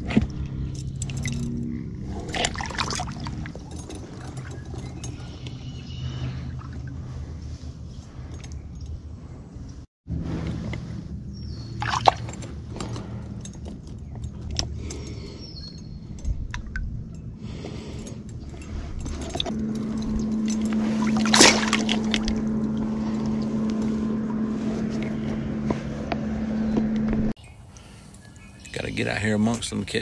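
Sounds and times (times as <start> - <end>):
steady low hum: 0.0 - 29.5
shallow water sloshing: 1.0 - 5.4, 11.6 - 13.0, 16.3 - 23.7
sharp water splashes: 11.8 - 12.3, 21.0 - 22.3.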